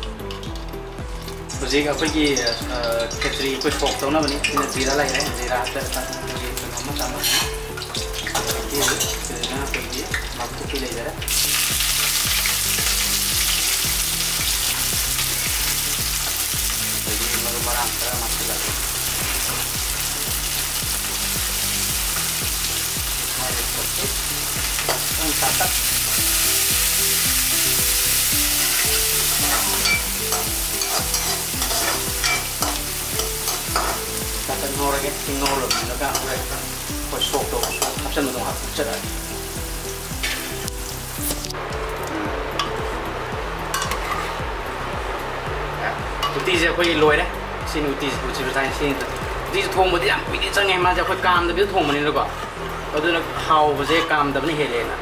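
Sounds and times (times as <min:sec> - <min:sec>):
hot oil sizzling: 0:00.0 - 0:55.0
spatula stirring and scraping: 0:28.6 - 0:34.1, 0:43.7 - 0:44.4.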